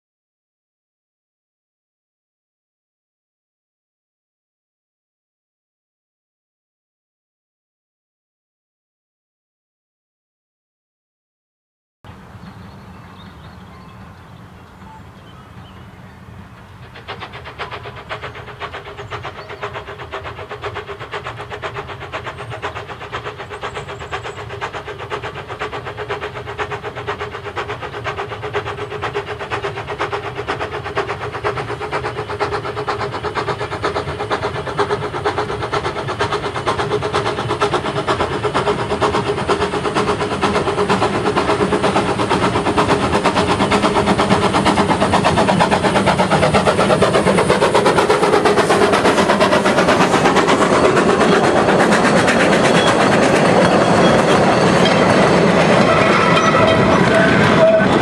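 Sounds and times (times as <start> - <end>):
steam locomotive exhaust beats: 12.1 - 58.0.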